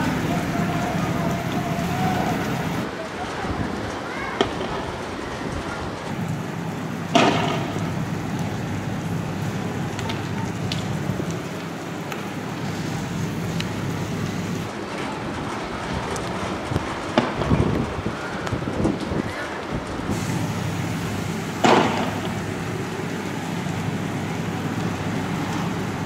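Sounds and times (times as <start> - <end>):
heavy rain: 0.0 - 26.0
wind: 0.0 - 26.0.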